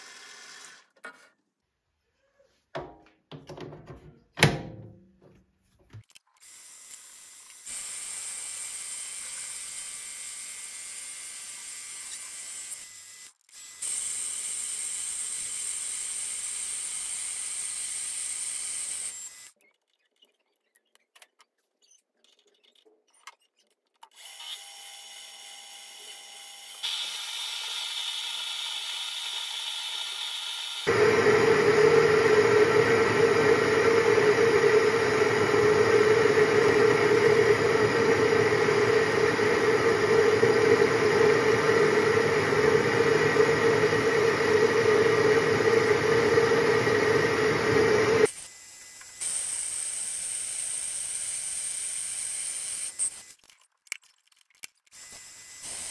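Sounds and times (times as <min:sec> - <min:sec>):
lathe tool cutting metal: 0:26.7 - 0:48.3
lathe motor running: 0:26.9 - 0:48.3.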